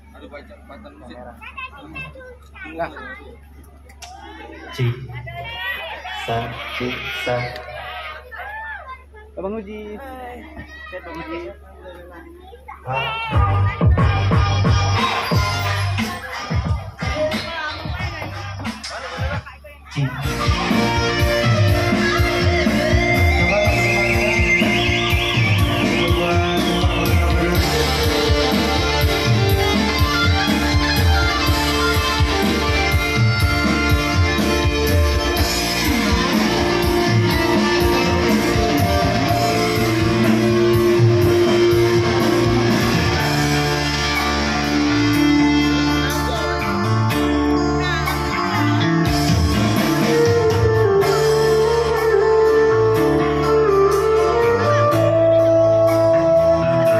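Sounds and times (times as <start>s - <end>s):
keyboard music over speakers: 12.8s - 56.9s.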